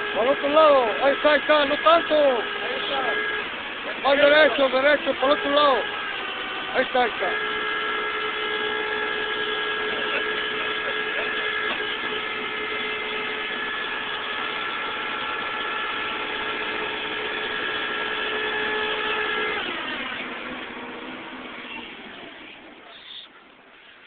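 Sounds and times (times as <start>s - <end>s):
winch whining under load: 0.0s - 24.0s.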